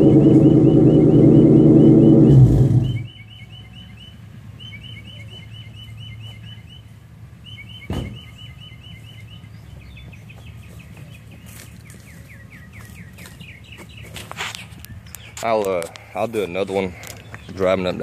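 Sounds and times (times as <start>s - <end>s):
loud car exhaust: 0.0s - 3.1s
bird chirping: 0.0s - 18.0s.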